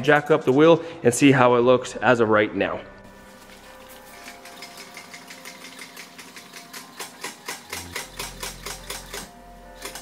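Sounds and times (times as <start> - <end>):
hydraulic jack pump clicking: 4.3 - 10.0.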